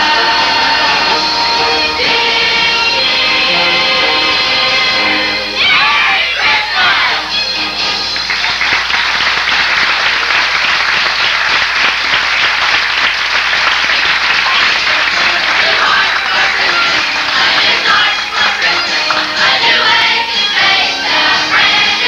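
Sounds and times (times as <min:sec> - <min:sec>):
audience applauding: 0:05.8 - 0:22.0.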